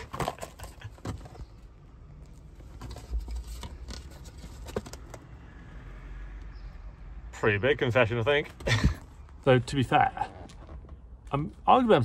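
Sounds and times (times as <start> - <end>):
hands handling rubbish: 0.0 - 5.3.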